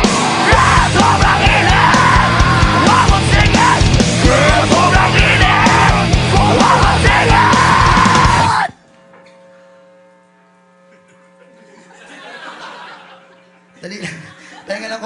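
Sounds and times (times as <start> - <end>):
drums: 0.0 - 8.7
shouted vocals: 0.0 - 8.8
distorted electric guitar: 0.0 - 9.0.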